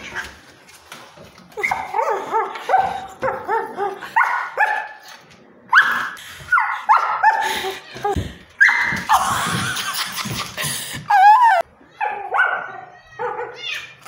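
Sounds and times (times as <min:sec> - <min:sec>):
dog barking: 0:01.9 - 0:05.0, 0:12.0 - 0:13.6.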